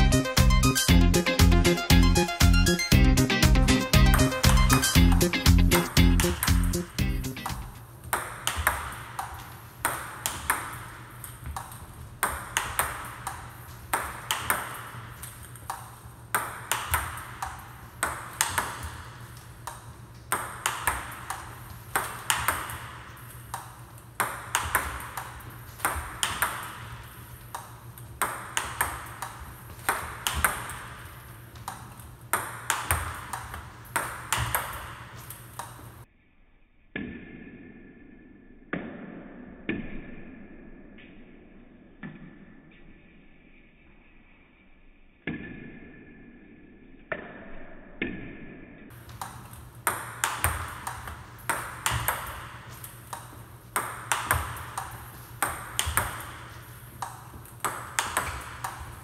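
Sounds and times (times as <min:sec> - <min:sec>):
table tennis ball clicks: 0:04.1 - 0:36.0, 0:48.9 - 0:59.0.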